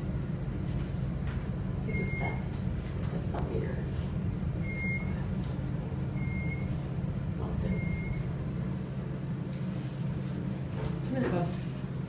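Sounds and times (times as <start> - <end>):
elevator humming: 0.0 - 12.0
short high-pitched beep: 7.7 - 8.2.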